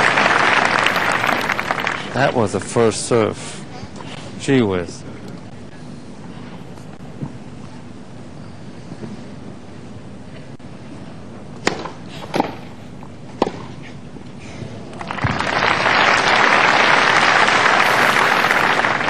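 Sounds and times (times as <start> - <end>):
crowd applauding: 0.0 - 2.4, 15.0 - 19.0
racket striking tennis ball: 11.6 - 12.7, 13.3 - 13.7.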